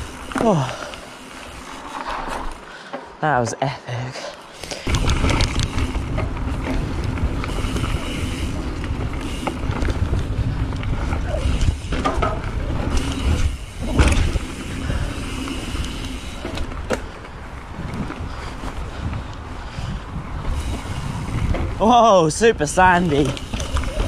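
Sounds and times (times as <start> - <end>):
tyres rumbling on dirt: 4.6 - 19.1, 20.1 - 24.0
bike clattering over bumps: 4.6 - 24.0
wind buffeting microphone: 4.8 - 24.0.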